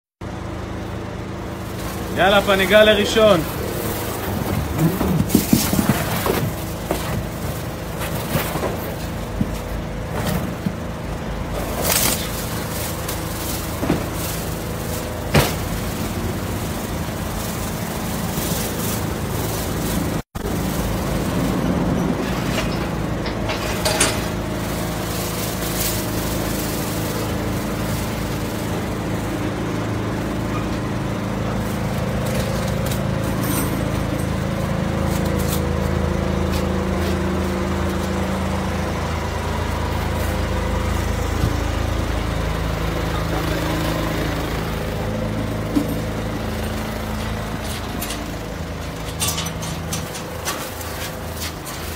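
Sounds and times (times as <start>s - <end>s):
vehicle engine idling: 0.2s - 51.9s
bubble wrap crinkling: 11.6s - 21.9s, 24.4s - 29.3s.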